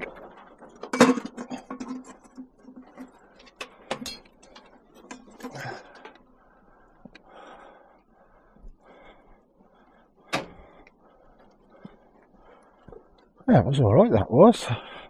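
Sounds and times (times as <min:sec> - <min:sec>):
scrap metal clicking and rattling: 0:00.0 - 0:06.2.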